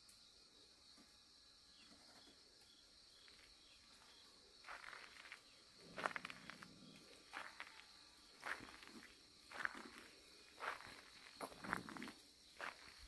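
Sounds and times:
insect chirring: 0:01.4 - 0:13.0
footsteps on dirt and gravel: 0:03.2 - 0:13.0.

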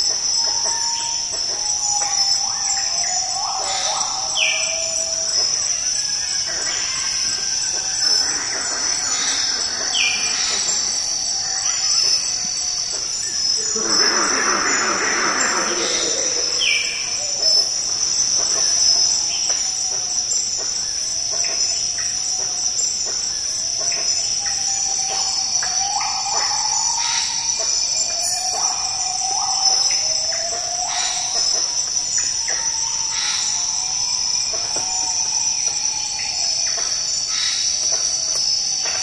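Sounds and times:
insects droning: 0:00.0 - 0:39.0
animal hooting calls: 0:13.6 - 0:17.4.

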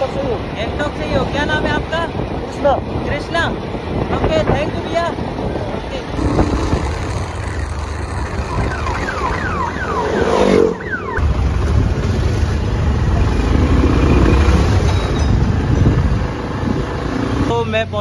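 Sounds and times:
wind rumble: 0:00.0 - 0:17.6
motorcycle engine: 0:06.2 - 0:15.2.

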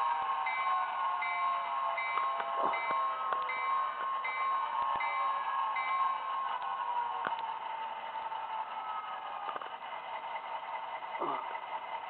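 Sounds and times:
model locomotive bell ringing: 0:00.0 - 0:07.8.

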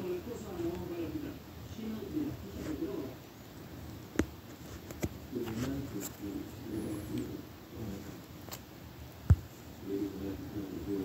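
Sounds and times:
faint muffled voice: 0:05.3 - 0:08.2.

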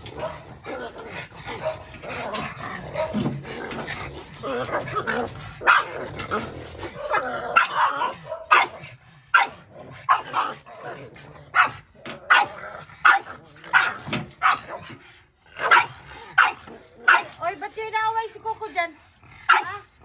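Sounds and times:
dog barking: 0:01.6 - 0:01.9, 0:05.6 - 0:05.9, 0:07.0 - 0:10.6, 0:11.5 - 0:14.9, 0:15.6 - 0:17.4, 0:19.5 - 0:19.8.

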